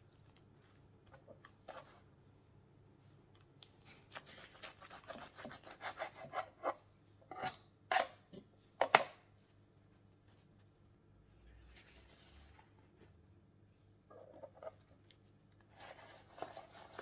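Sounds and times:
knife sawing through bread: 4.3 - 6.5.

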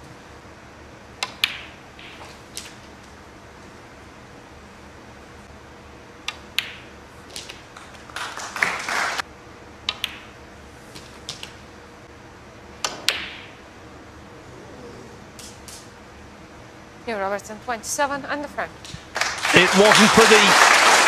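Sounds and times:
cue tip clicking on ball: 1.2 - 2.7, 9.9 - 10.3
snooker balls striking: 1.2 - 2.8, 6.2 - 8.1, 9.9 - 10.4, 12.8 - 13.6.

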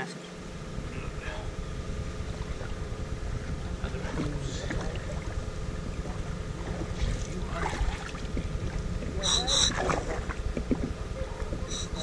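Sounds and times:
wind rumbling on microphone: 0.4 - 12.0
faint knocks and rustles: 10.3 - 11.7.

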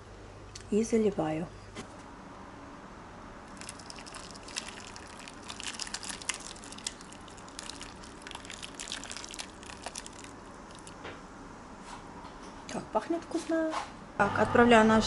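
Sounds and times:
sauce splashing into dish: 3.6 - 11.0.

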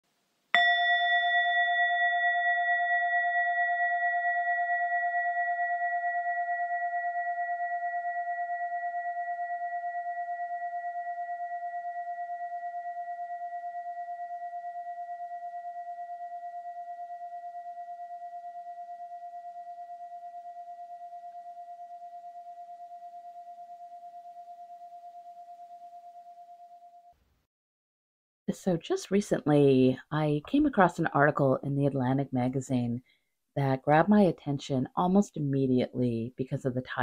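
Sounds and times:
singing bowl ringing: 0.6 - 27.1.

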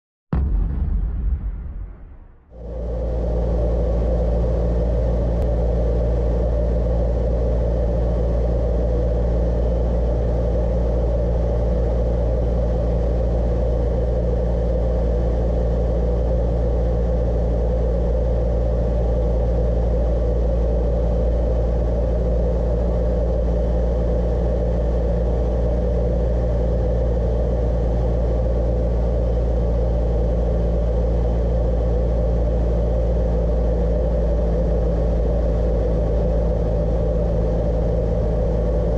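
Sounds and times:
airplane engine and propeller droning: 2.5 - 38.9.

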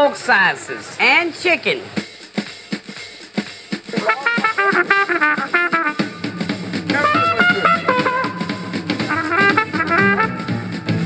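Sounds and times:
drum kit: 1.9 - 11.0
trumpet playing jazz: 3.9 - 11.0.

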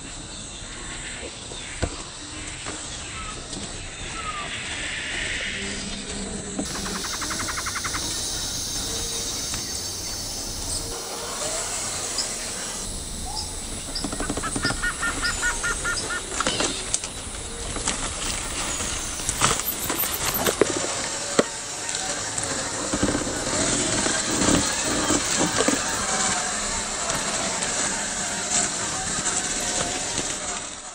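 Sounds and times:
steady background hiss: 0.0 - 30.6
bird calling repeated notes: 6.7 - 20.4.

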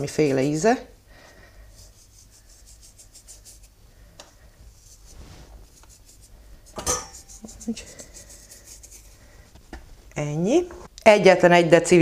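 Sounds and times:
fingers rubbing: 1.7 - 3.8, 4.7 - 9.7
short rustle: 4.8 - 6.3.

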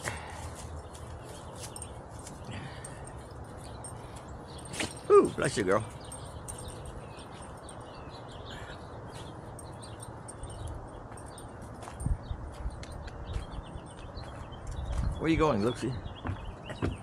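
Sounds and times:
wind rumbling on microphone: 11.8 - 15.6.

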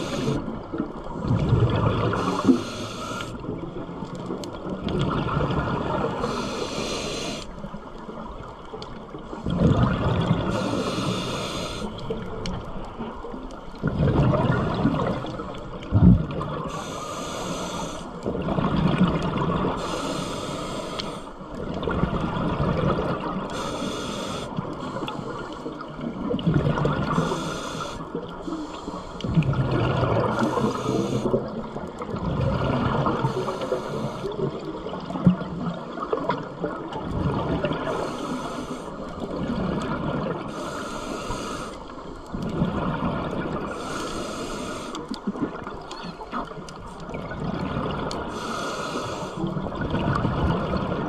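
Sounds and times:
diver breathing through regulator: 0.0 - 0.5, 2.1 - 3.5, 6.1 - 7.5, 10.4 - 12.1, 16.6 - 18.2, 19.8 - 21.4, 23.5 - 25.8, 27.0 - 29.5, 30.2 - 31.6, 33.1 - 34.6, 37.8 - 39.2, 40.5 - 42.4, 43.6 - 45.2, 48.3 - 49.6.

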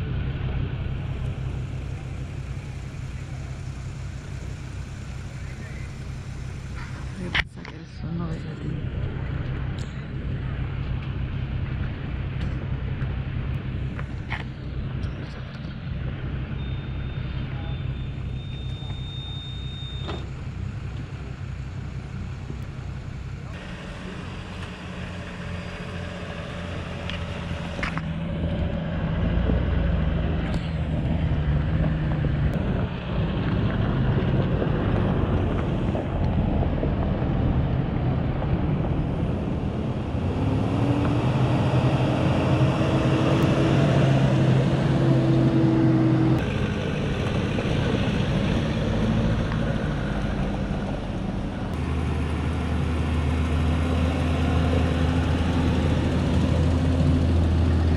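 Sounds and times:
off-road engine revving: 0.0 - 57.9
tyre and wind noise: 27.8 - 51.8.

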